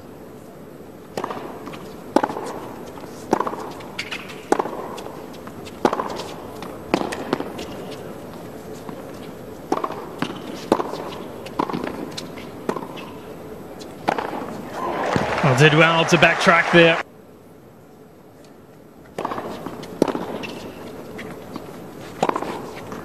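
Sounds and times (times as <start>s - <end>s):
racket hitting tennis ball: 1.1s - 8.0s, 8.6s - 13.2s, 14.0s - 16.6s, 19.1s - 23.0s.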